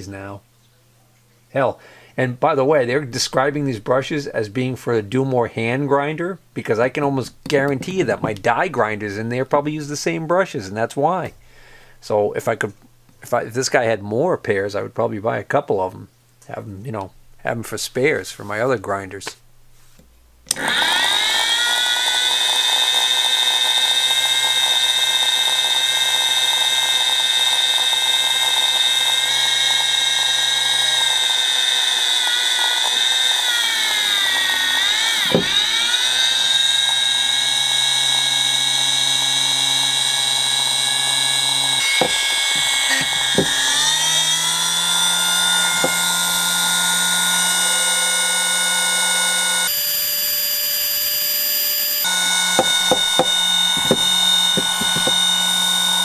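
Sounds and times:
drill press motor whining: 20.5 - 56.0.

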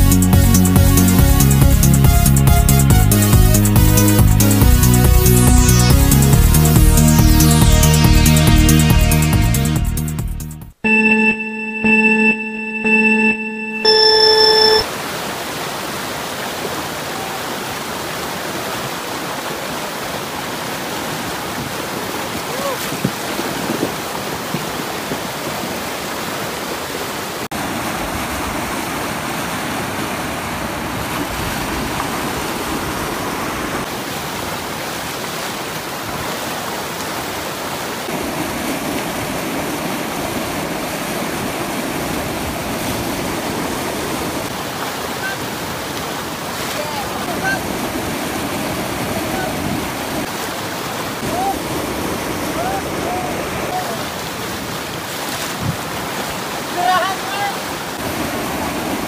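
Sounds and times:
water rushing over rocks: 14.8 - 59.0.

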